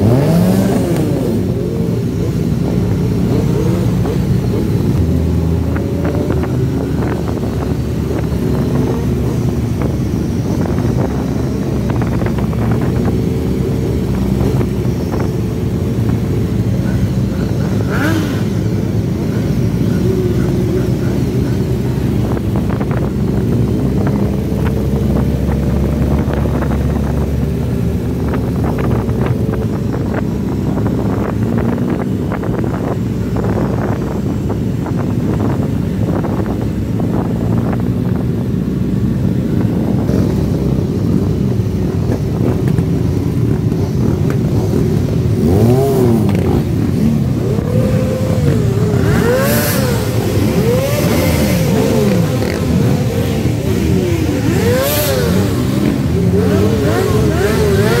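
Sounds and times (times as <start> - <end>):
motorcycle engines revving: 0.0 - 58.0
motorcycle engines running: 0.0 - 58.0.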